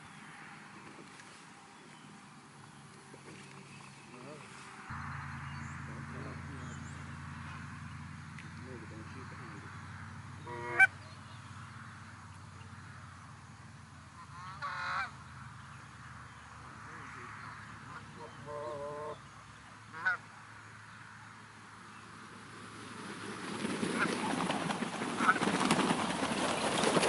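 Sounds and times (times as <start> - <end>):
goose honking: 10.4 - 11.0, 14.2 - 15.2, 17.8 - 19.2, 19.9 - 20.2, 25.2 - 25.6.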